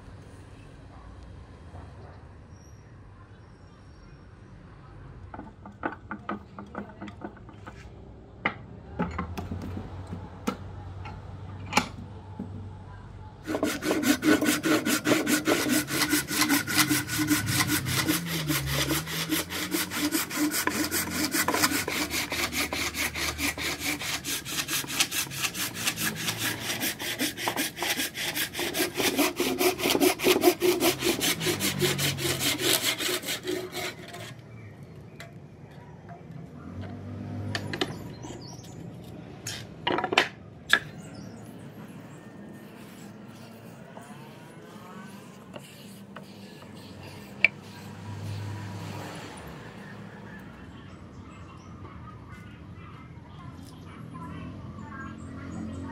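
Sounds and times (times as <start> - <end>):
hand saw cutting wood: 13.4 - 34.4, 42.5 - 49.4.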